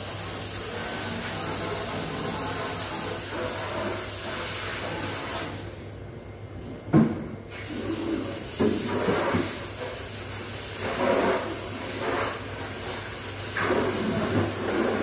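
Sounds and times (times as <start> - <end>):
hose water spraying and splashing: 0.0 - 5.7, 7.5 - 15.0
steady low hum: 0.0 - 8.2.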